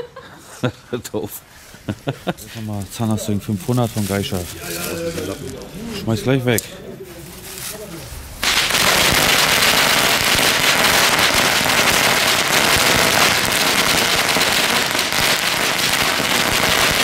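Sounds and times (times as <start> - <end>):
firecracker string going off: 7.6 - 17.0.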